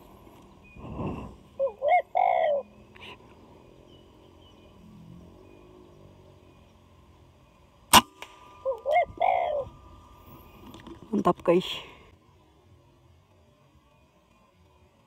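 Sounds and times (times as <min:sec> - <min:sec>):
dove cooing: 0:01.5 - 0:04.0, 0:08.6 - 0:10.6
rifle shot: 0:07.9 - 0:08.4.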